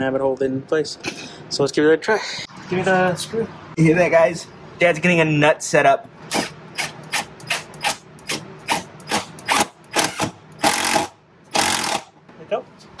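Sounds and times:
power driver driving screw into metal: 6.3s - 12.1s.

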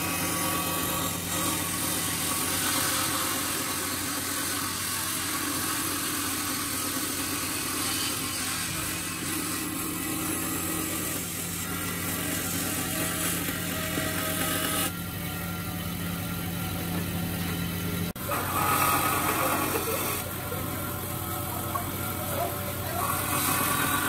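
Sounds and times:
band saw cutting wood: 0.0s - 24.0s.

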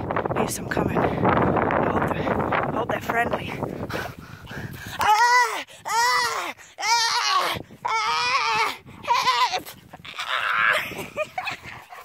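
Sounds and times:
woman squealing: 5.0s - 11.1s.

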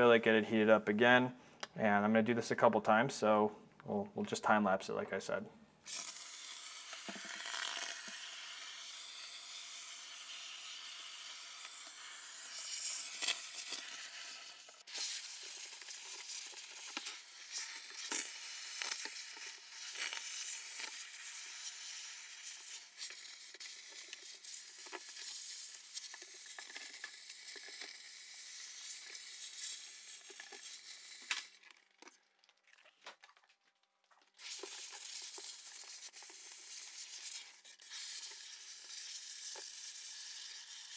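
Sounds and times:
ice crackling and sizzling: 5.9s - 40.9s.

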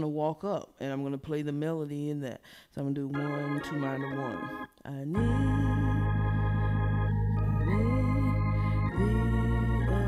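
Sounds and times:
organ playing held chords: 3.2s - 10.0s
steady bass: 5.2s - 10.0s.

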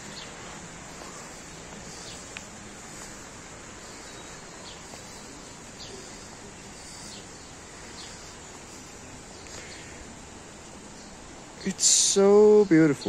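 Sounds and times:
bird chirping: 0.0s - 10.0s
background hiss: 0.0s - 13.0s.

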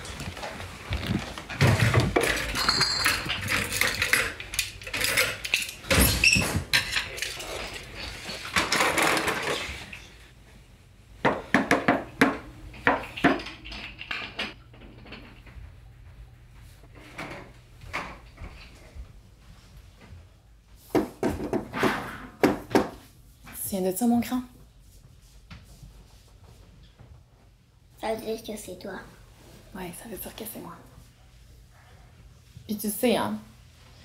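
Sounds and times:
metal utensils clattering: 1.6s - 10.2s.

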